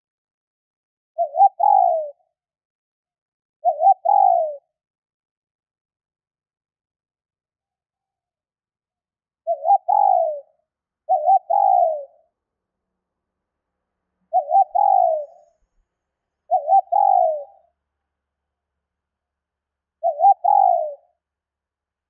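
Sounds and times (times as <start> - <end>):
dove cooing: 1.2 - 2.2, 3.6 - 4.6, 9.4 - 12.2, 14.3 - 15.7, 16.5 - 17.7, 20.0 - 21.2.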